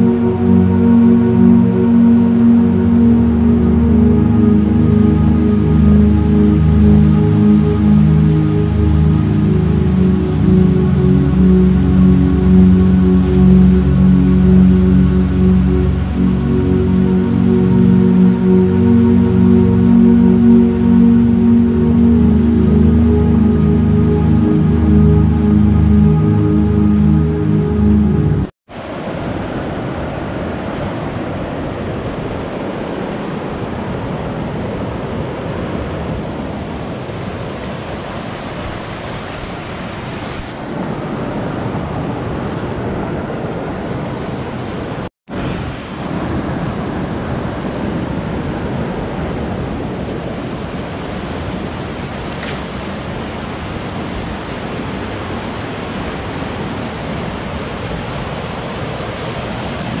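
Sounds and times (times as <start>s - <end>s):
river rushing over rapids: 28.7s - 60.0s.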